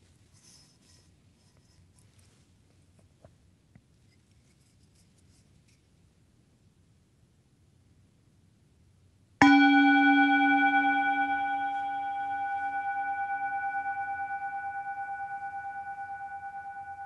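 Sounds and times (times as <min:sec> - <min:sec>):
metal singing bowl ringing: 0:09.4 - 0:17.0.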